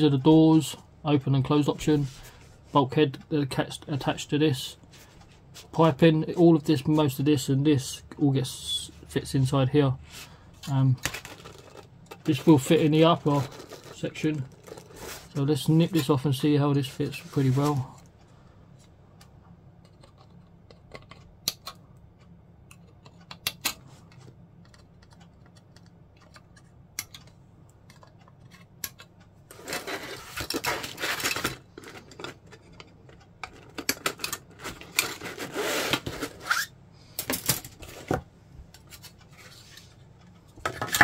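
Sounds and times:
plastic rustling and rubbing: 10.1s - 18.0s, 29.5s - 32.7s, 33.5s - 36.7s.

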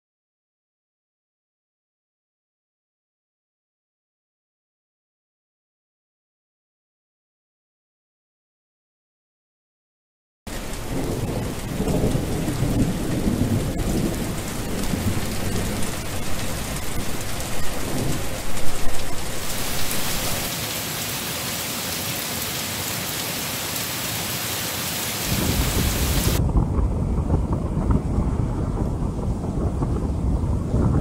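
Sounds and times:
thunder rumbling: 10.5s - 20.6s, 25.2s - 31.0s
heavy rain: 10.5s - 31.0s.

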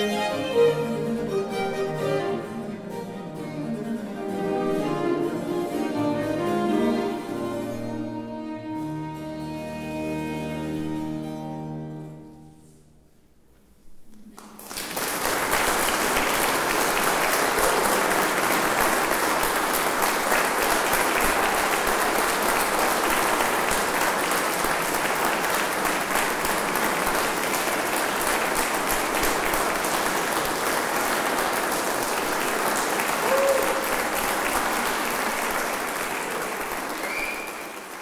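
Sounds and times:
audience applauding: 14.3s - 38.0s.

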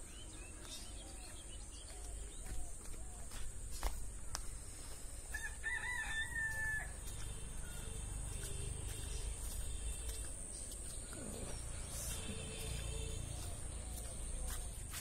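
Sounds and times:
rooster crowing: 5.3s - 7.0s.

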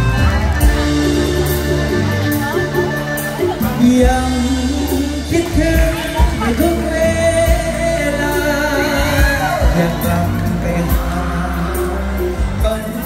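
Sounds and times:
heavy bass beat: 0.0s - 13.0s
live band playing: 0.0s - 13.0s
man singing into microphone: 3.6s - 13.0s.

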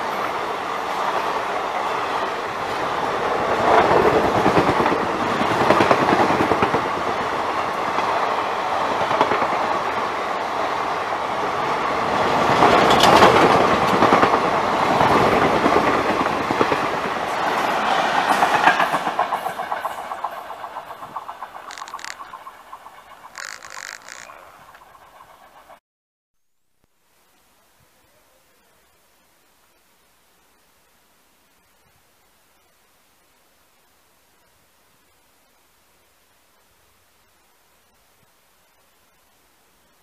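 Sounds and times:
train passing with rush and rumble: 0.0s - 25.8s
wheel clatter over rail joints: 12.6s - 14.3s, 15.0s - 25.8s
sharp clacks: 18.3s - 25.4s.

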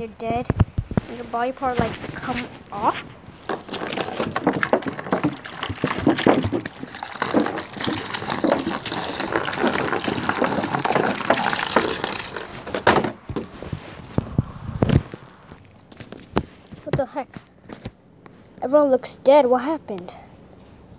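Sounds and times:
water pouring into plastic tub: 2.8s - 13.0s.

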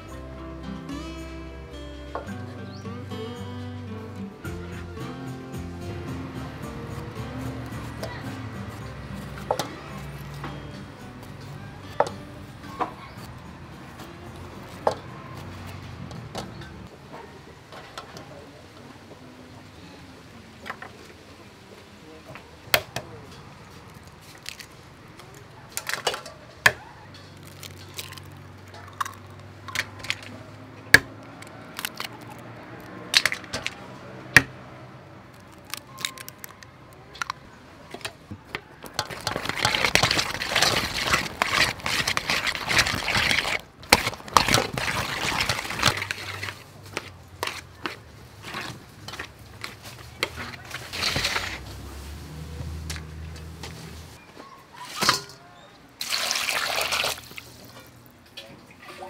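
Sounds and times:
eggs cracking on metal bowl: 25.3s - 30.3s, 30.9s - 33.8s, 35.3s - 51.5s
wet clattering of stirring in bowl: 27.2s - 34.5s, 35.3s - 54.0s.

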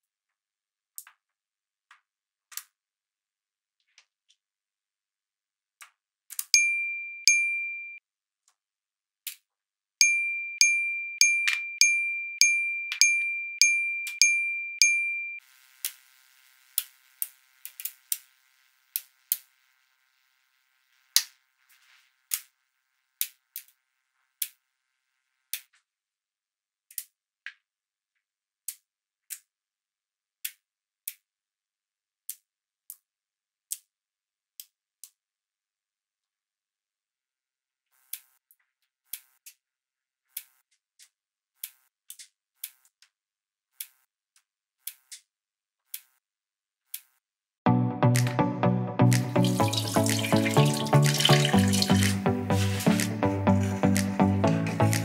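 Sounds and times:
ringing dings: 6.6s - 8.0s, 10.0s - 15.4s.

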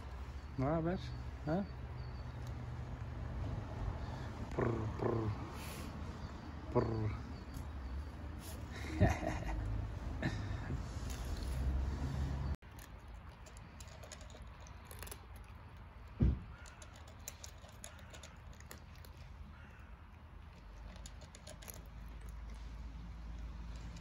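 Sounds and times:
cats crunching dry kibble: 12.6s - 24.0s.

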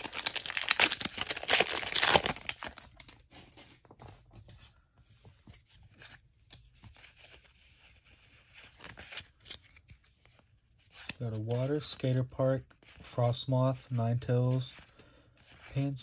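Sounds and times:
foil wrapper crinkling and tearing: 0.0s - 3.2s
cards being handled: 5.4s - 12.0s.

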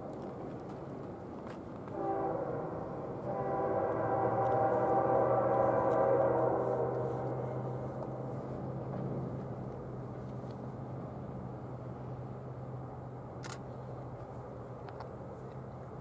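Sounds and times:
locomotive engine drone: 0.1s - 16.0s
train horn: 1.9s - 9.2s.

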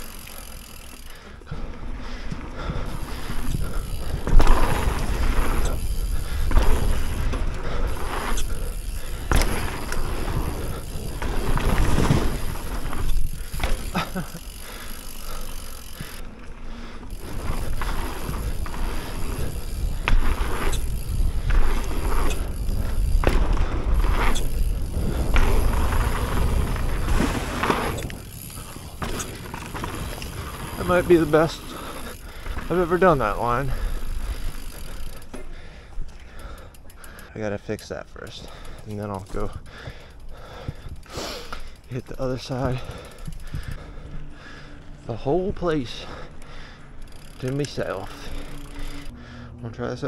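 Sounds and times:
bike tyres rolling on dirt: 0.0s - 50.0s
bike landing knocks: 9.1s - 14.3s.

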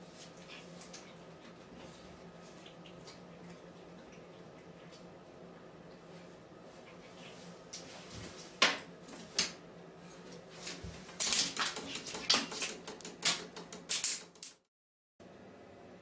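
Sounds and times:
cat claws scrabbling in bathtub: 10.6s - 14.6s.

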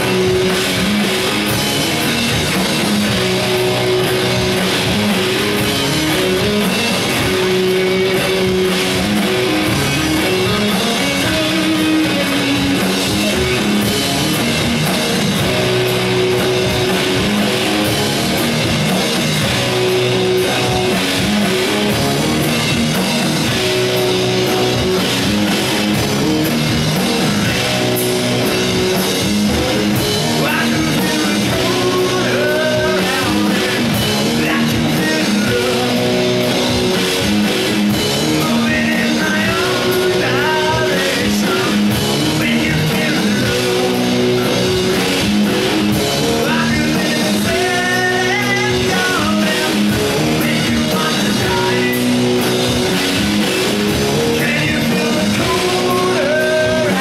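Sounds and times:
rock band playing live: 0.0s - 57.0s
person singing: 9.7s - 13.8s, 30.3s - 36.6s, 38.1s - 44.6s, 46.2s - 52.4s, 54.0s - 57.0s.

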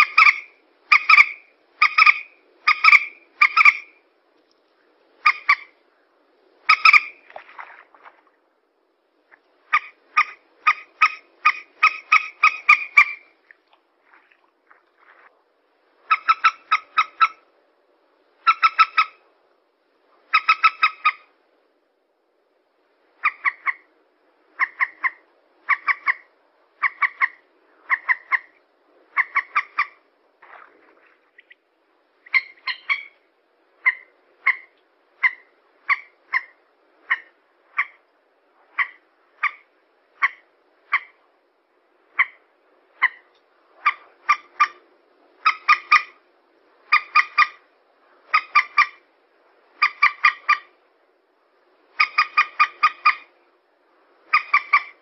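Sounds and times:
moorhen calls: 0.0s - 4.0s, 5.2s - 5.8s, 6.6s - 7.3s, 9.6s - 13.4s, 16.0s - 17.5s, 18.4s - 19.2s, 20.2s - 21.3s, 23.2s - 23.9s, 24.5s - 30.6s, 32.2s - 38.0s, 38.6s - 41.2s, 42.1s - 46.2s, 46.8s - 49.1s, 49.7s - 50.8s, 51.9s - 53.4s, 54.2s - 55.0s.

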